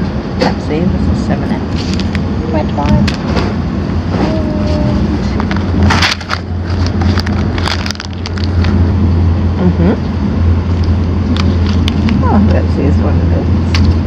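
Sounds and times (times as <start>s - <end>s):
train cabin rumble: 0.0s - 14.0s
plastic wrappers crinkling: 5.3s - 8.9s.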